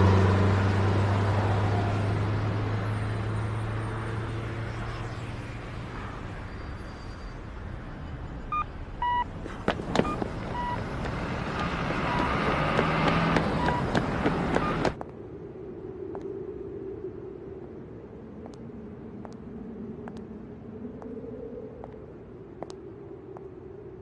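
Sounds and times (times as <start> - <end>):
traffic noise: 0.0 - 15.4.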